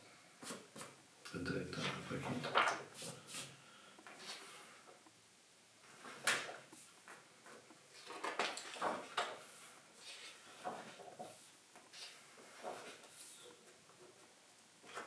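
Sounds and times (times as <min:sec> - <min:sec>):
pages turning: 0:01.8 - 0:03.5, 0:06.0 - 0:13.5.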